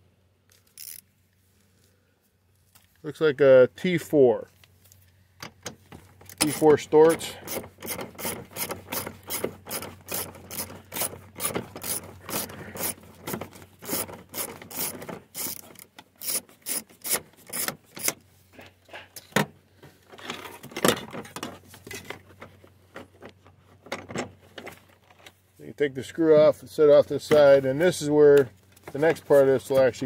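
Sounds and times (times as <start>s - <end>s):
ratchet wrench clicking: 0.6s - 1.0s, 6.3s - 13.0s, 13.8s - 18.2s.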